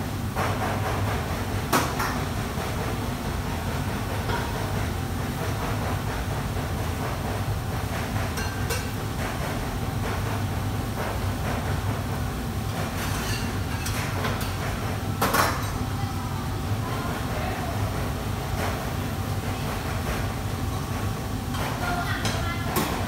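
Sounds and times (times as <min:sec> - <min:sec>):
wok range and extraction roar: 0:00.0 - 0:23.0.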